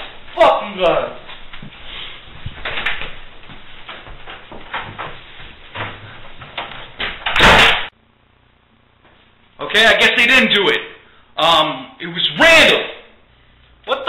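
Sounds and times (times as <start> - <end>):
door slamming shut: 7.1 - 7.9.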